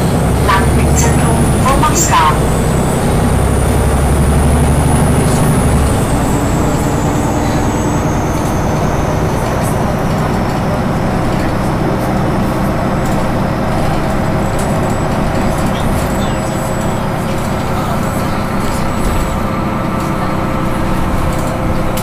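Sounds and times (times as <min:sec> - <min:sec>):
bus engine drone: 0:00.0 - 0:22.0.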